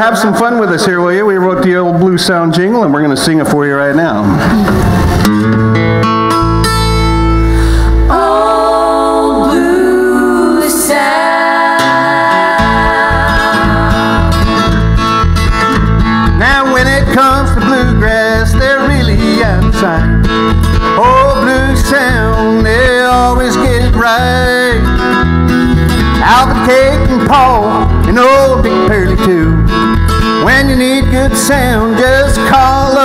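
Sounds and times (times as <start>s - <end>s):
acoustic guitar: 3.5s - 33.0s
group singing in harmony: 7.7s - 14.9s.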